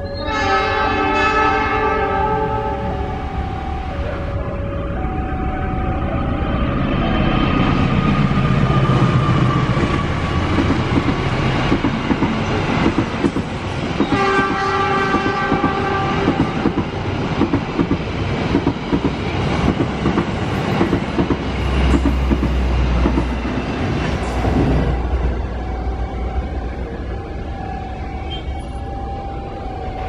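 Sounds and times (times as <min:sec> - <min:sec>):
multi-tone train horn: 0:00.0 - 0:06.4, 0:14.0 - 0:16.8, 0:27.8 - 0:30.0
diesel locomotive engine: 0:00.0 - 0:30.0
train wheels clattering on rail joints: 0:09.7 - 0:24.8.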